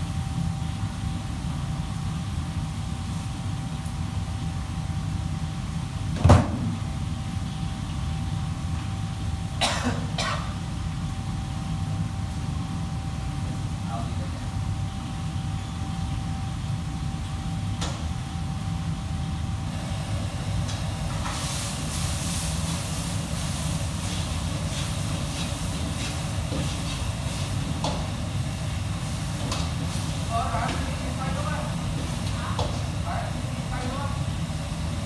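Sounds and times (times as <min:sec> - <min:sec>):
burner and extractor rushing: 0:19.5 - 0:35.0
food sizzling in a wok: 0:19.7 - 0:35.0.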